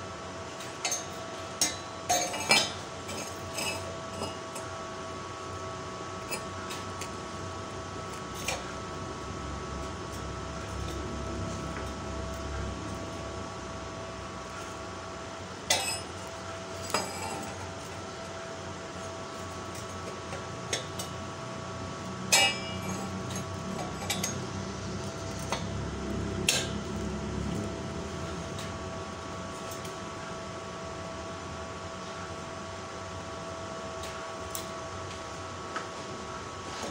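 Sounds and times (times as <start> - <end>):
steady hum: 0.0 - 36.9
steel strips clinking: 22.3 - 25.7.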